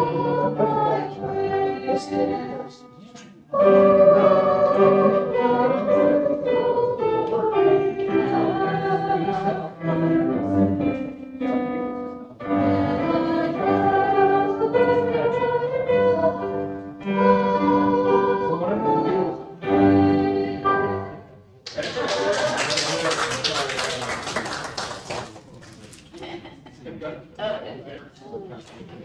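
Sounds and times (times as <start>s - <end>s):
voices singing a hymn: 0.0s - 11.7s, 12.4s - 21.4s
instrumental accompaniment: 0.0s - 21.4s.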